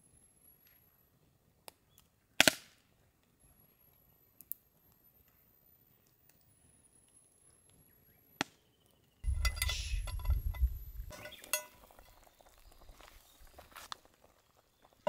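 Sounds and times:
low rumbling handling noise: 9.2s - 12.2s
metal lid lifter clinking on lid: 9.3s - 12.1s.

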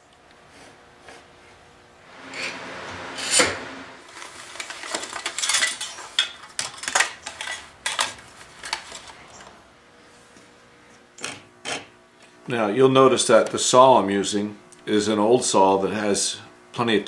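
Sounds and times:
metal tools clicking and clinking: 4.9s - 8.8s.

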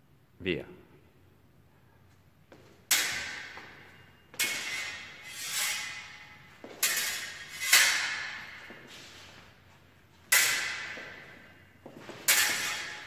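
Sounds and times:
sword blades clashing: 2.9s - 3.8s, 4.4s - 8.8s, 10.3s - 13.0s
blade sliding along blade: 4.4s - 6.2s.

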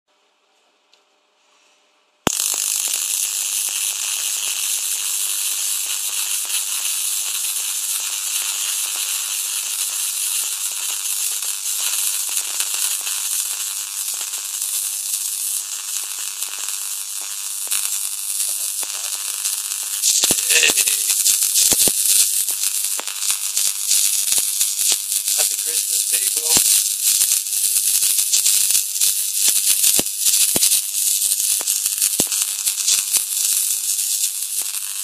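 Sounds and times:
electric arc crackling and hissing: 2.2s - 35.0s.

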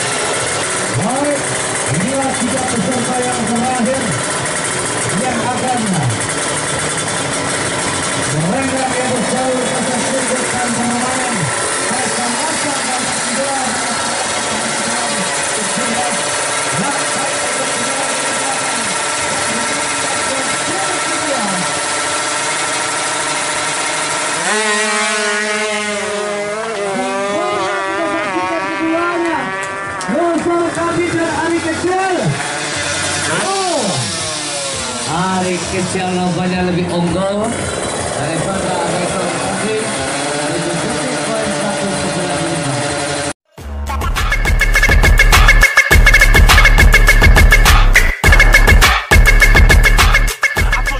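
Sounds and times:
motorbike engine at full throttle: 0.0s - 50.9s
music with heavy fast beat: 43.5s - 50.9s.

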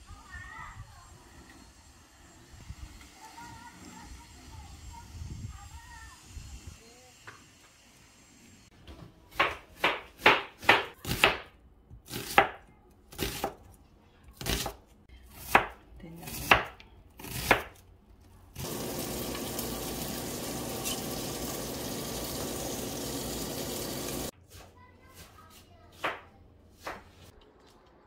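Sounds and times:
knife chopping on cutting board: 9.3s - 11.5s, 12.1s - 13.6s, 15.4s - 17.8s.

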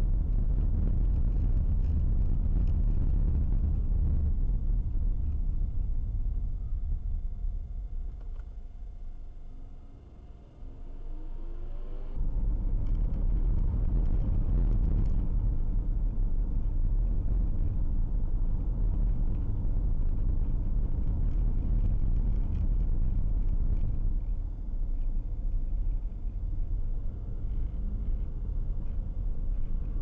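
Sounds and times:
car interior road and engine rumble: 0.0s - 30.0s.

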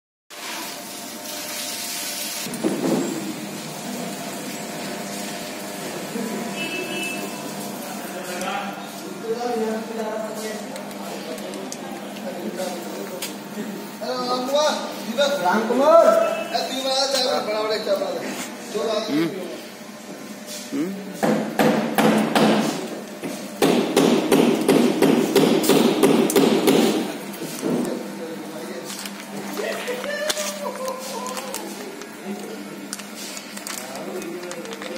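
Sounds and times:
sealer motor hum: 0.4s - 21.2s.

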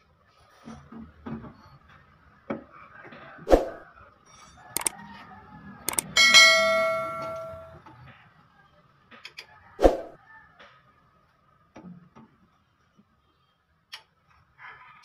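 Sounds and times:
clicks: 5.9s - 7.7s
bell-like ding: 5.9s - 7.8s
steel knocking on press bed: 6.0s - 7.7s.

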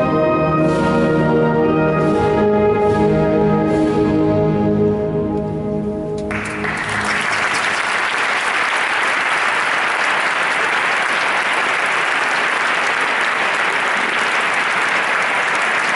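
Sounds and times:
audience applauding: 6.3s - 15.9s.

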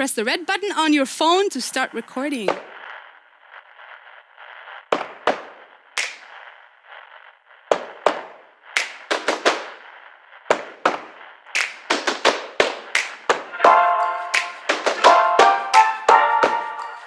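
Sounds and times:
background hiss: 0.0s - 17.0s
hand claps: 6.0s - 6.3s, 8.8s - 9.7s, 11.6s - 16.9s.

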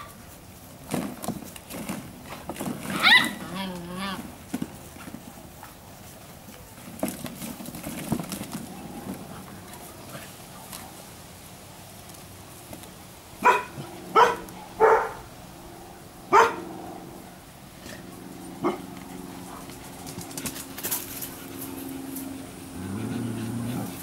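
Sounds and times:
puppy barking: 3.0s - 3.4s, 13.4s - 15.3s, 16.3s - 16.7s, 18.6s - 18.9s.

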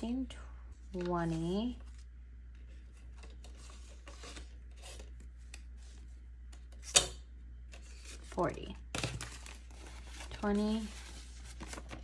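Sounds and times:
paper banknotes rustling: 7.8s - 12.0s.

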